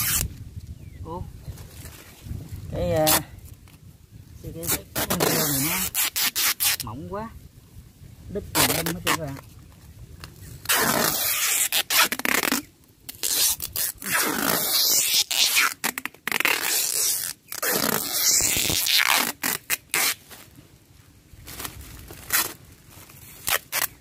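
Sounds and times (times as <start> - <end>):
adhesive tape pulled off roll: 0.0 - 0.4, 3.0 - 3.8, 4.6 - 6.9, 8.6 - 9.4, 10.2 - 20.5, 21.5 - 24.0
tape tearing: 0.0 - 0.4, 3.0 - 3.8, 4.6 - 6.9, 8.6 - 9.5, 10.2 - 20.5, 21.5 - 24.0.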